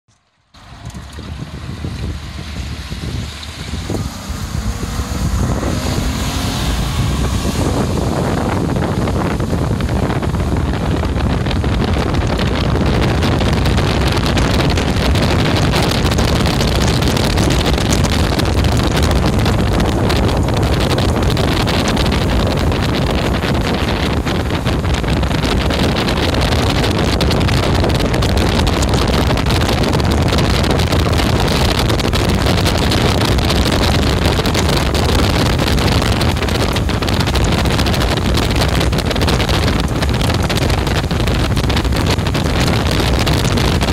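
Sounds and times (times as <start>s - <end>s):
wind buffeting microphone: 0.5s - 43.9s
outboard motor running: 0.6s - 43.9s
water rushing past hull: 1.7s - 43.9s.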